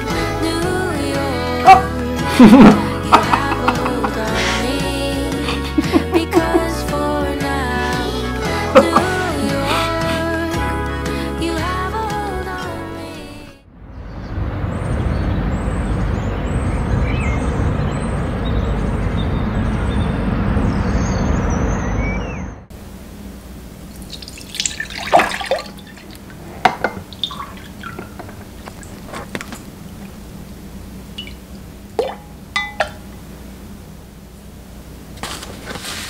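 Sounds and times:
liquid pouring into a glass: 24.0 - 28.9, 31.2 - 33.0
spoon clinking against glass: 32.6 - 33.0.

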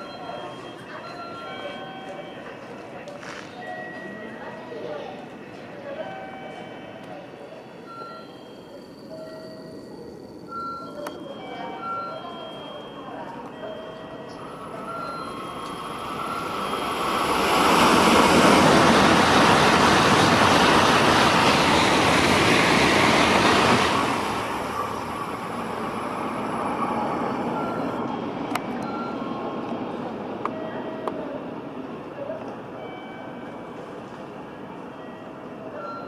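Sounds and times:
high-speed train rushing past: 14.0 - 36.0.

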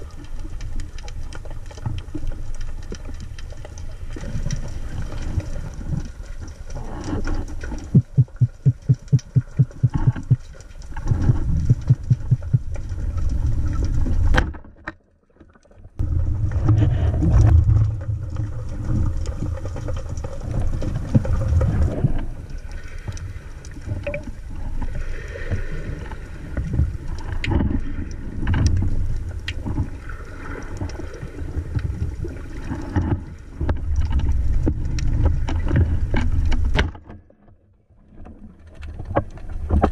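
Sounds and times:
muffled underwater rumble: 0.0 - 14.5, 16.0 - 36.9
rapid even thumps: 7.9 - 10.4, 11.1 - 12.8.

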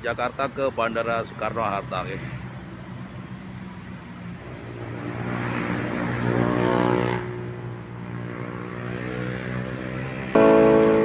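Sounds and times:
music: 10.4 - 11.0.

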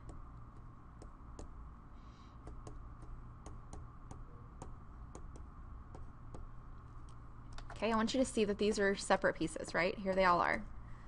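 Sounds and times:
stylus clicking on tablet screen: 0.0 - 1.6, 2.4 - 7.8
low steady hum: 0.0 - 11.0.

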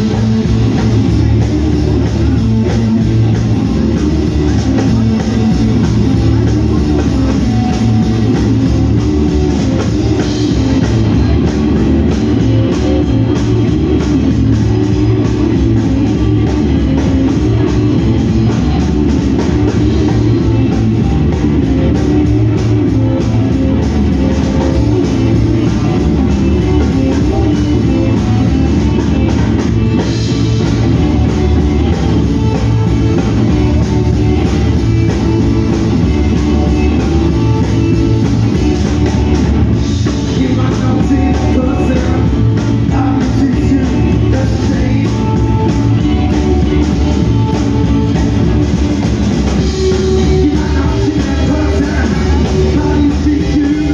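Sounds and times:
drum kit: 0.0 - 53.9
electric guitar: 0.0 - 53.9
live punk band playing: 0.0 - 53.9.

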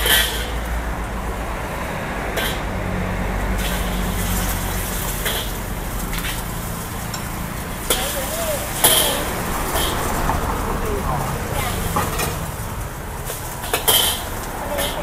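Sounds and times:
street traffic rumble: 0.0 - 15.0
metal ladle scraping in wok: 3.6 - 10.6, 11.6 - 15.0.

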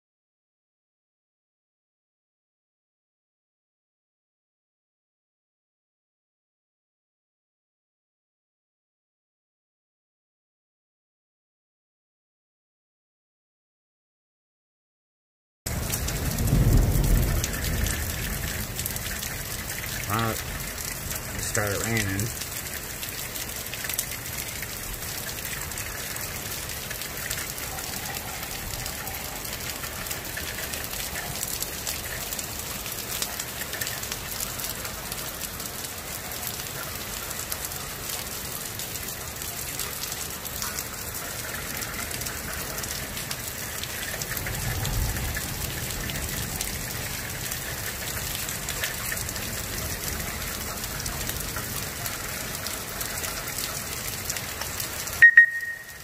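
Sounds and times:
steady rain falling: 15.7 - 56.0.

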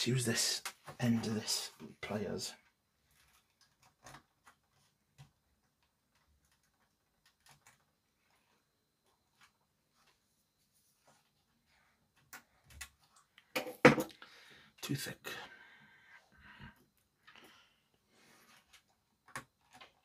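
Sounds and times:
faint clicks and ticks: 2.6 - 10.2.

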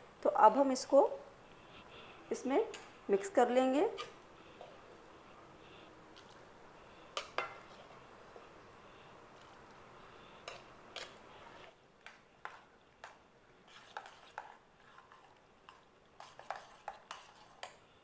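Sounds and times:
spoon scraping mixing bowl: 3.7 - 4.8, 12.4 - 17.8.

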